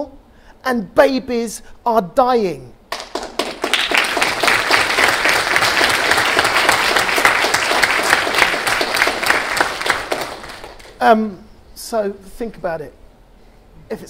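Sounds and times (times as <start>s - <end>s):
audience applauding: 2.9s - 11.0s.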